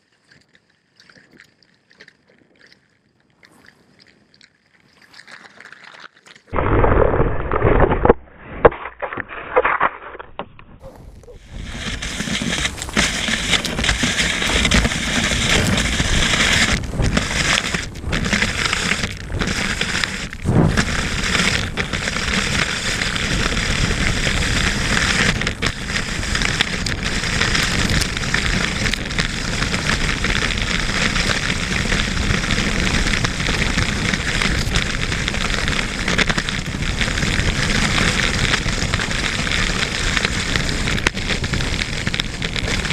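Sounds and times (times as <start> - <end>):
skis gliding over packed snow: 6.6 - 42.9
wind buffeting microphone: 10.5 - 42.9.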